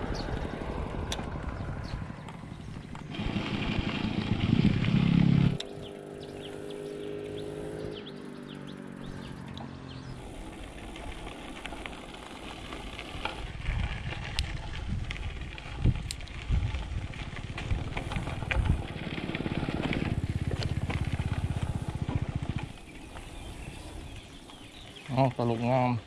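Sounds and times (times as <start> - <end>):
wind noise on microphone: 0.0 - 5.8, 13.1 - 22.8
motorcycle engine running: 0.0 - 25.6
road noise: 0.0 - 26.0.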